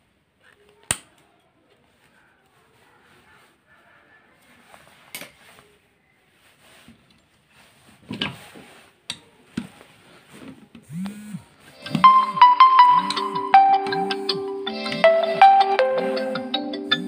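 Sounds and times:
background music: 0:11.7 - 0:17.0.

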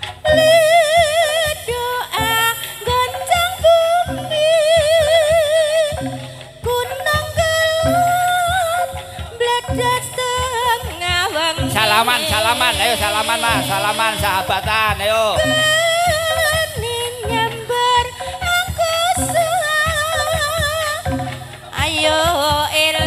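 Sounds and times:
woman singing with vibrato: 0:00.0 - 0:23.0
low drum strokes: 0:04.7 - 0:22.7.

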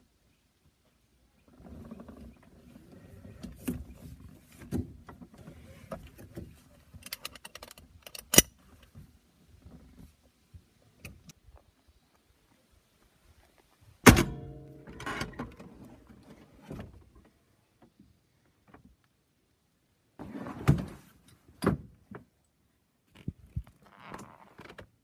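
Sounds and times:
metallic clank: 0:14.1 - 0:15.5
dull thunks: 0:14.1 - 0:15.6.

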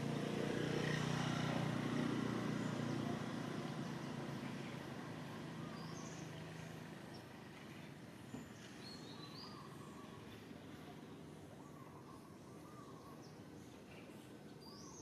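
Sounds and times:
passing vehicle engine hum: 0:00.0 - 0:08.8
faint bird chirps: 0:04.3 - 0:15.0.

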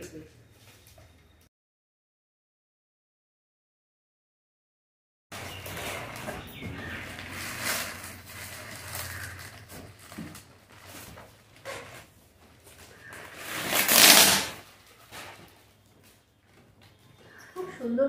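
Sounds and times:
plastic bag rustling and crinkling: 0:05.3 - 0:16.2.

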